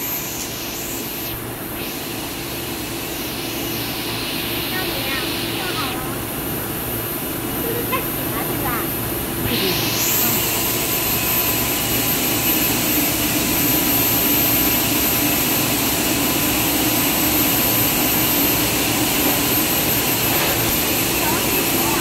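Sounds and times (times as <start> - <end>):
rush of air and machine hum: 8.9 - 22.0.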